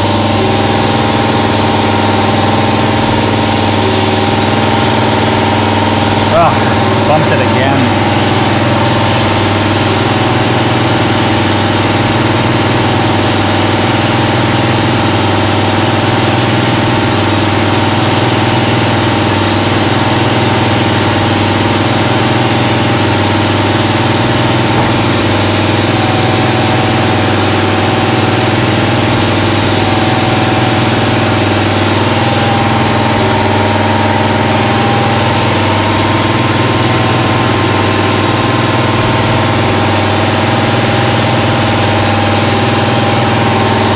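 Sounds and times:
milling machine cutting metal: 0.0s - 12.8s, 22.1s - 43.9s.

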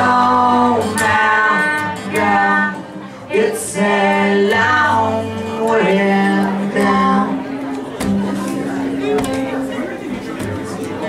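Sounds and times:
person singing long held notes: 0.0s - 7.6s
instrumental accompaniment: 0.1s - 11.0s.

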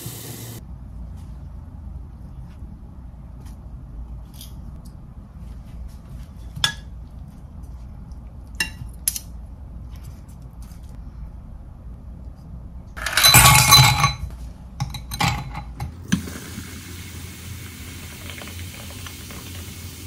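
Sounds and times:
low steady hum: 0.0s - 20.0s
utensils clinking against dishes: 13.0s - 16.0s.

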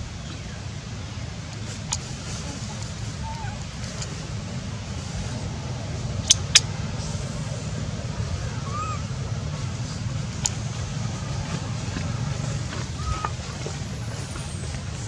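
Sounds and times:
low outdoor rumble: 0.0s - 15.0s
sharp clicks: 6.2s - 6.7s.

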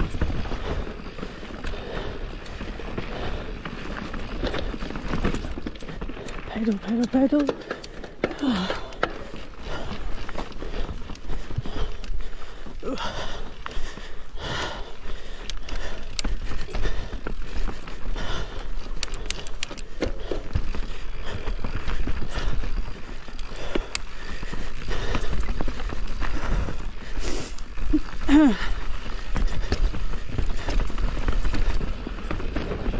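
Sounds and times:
bike clicks and knocks: 0.0s - 12.2s, 15.2s - 26.8s
bike tyres rattling over stones: 0.0s - 32.9s.

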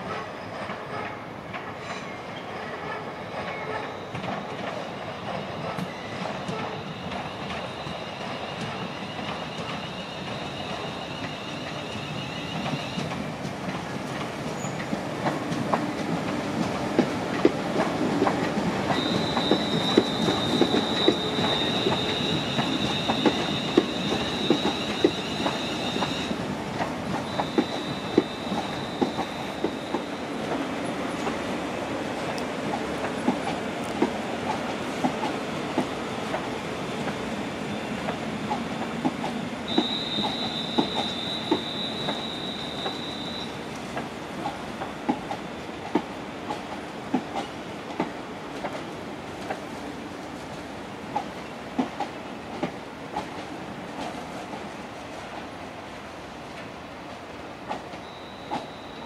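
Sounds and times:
train wheels squealing: 0.0s - 13.2s, 14.5s - 14.9s, 18.9s - 26.4s, 27.2s - 30.5s, 39.7s - 43.6s, 57.9s - 59.0s.

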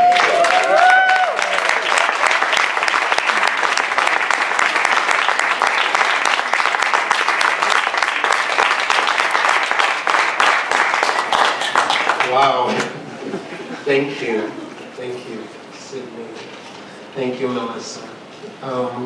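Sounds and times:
audience applauding: 0.0s - 13.5s.

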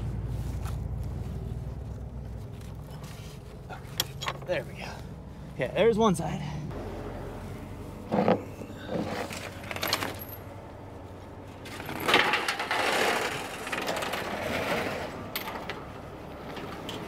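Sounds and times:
metal chain scraping and rattling: 8.1s - 10.7s, 11.4s - 17.0s.

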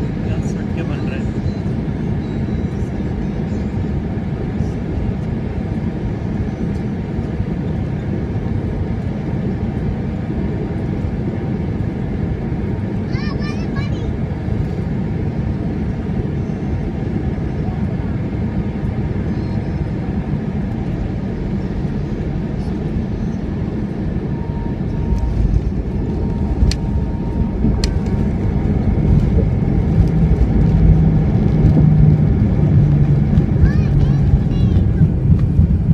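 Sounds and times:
airliner cabin rumble: 0.0s - 35.9s
low hum: 13.8s - 35.9s.

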